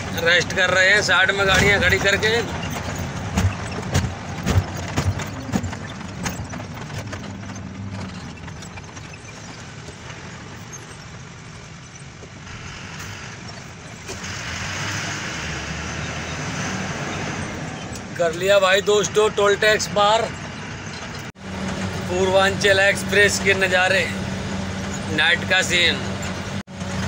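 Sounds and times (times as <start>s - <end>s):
clicks and rattles: 0.0s - 12.4s
diesel truck engine hum: 0.0s - 27.0s.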